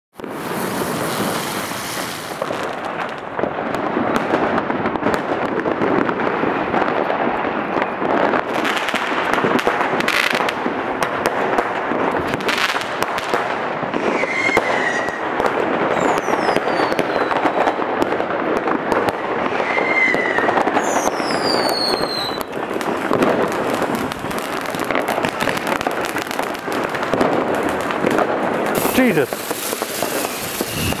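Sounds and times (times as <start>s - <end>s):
fireworks crackling and banging: 0.1s - 31.0s
falling firework whistles: 0.2s - 2.4s, 14.0s - 15.3s, 15.9s - 17.9s, 19.4s - 26.3s, 28.8s - 31.0s.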